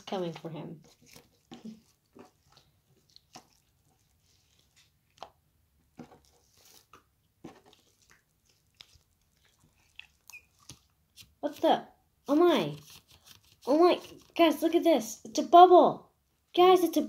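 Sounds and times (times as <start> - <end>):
slime wet clicks and crackles: 7.8 - 10.9.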